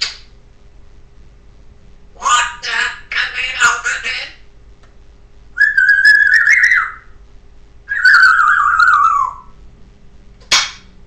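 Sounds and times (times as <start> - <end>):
parrot whistling: 5.6 - 7.2, 7.9 - 9.6.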